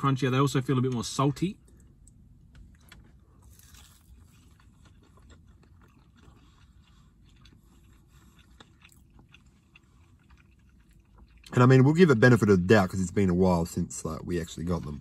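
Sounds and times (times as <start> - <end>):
low steady hum: 0.0 - 15.0
faint crunchy chewing: 0.8 - 12.3.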